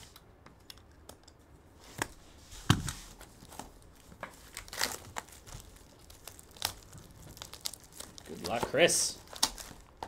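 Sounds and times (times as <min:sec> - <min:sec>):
plastic wrapping crinkling: 0:02.0 - 0:10.0.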